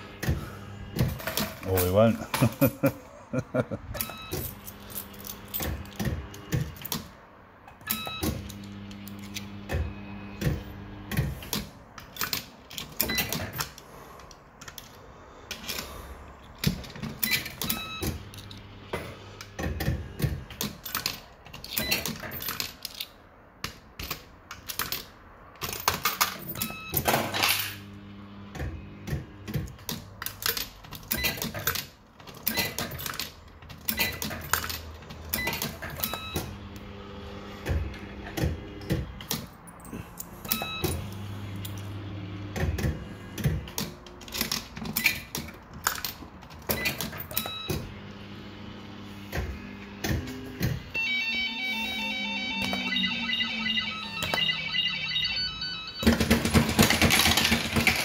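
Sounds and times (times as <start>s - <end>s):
sharp clicks and clunks: 56.0s - 58.0s.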